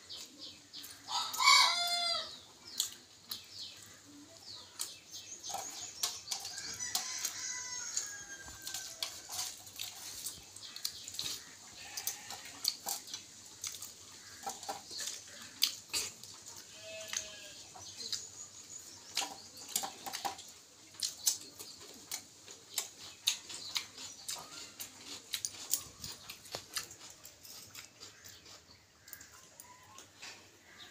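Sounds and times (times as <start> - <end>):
wet chewing mouth clicks: 8.8 - 16.6, 19.1 - 30.1.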